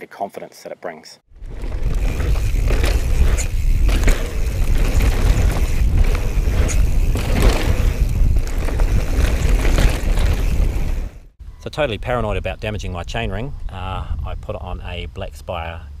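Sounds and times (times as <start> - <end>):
bike rattling over bumps: 1.3 - 11.3
bike tyres on dirt: 1.3 - 11.4
wind rumbling on microphone: 1.3 - 15.4.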